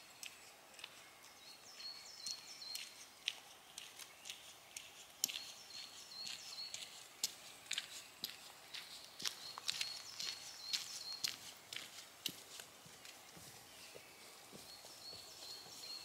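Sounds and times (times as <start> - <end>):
light ticks and clicks: 0.0 - 5.5
songbird singing: 0.0 - 16.0.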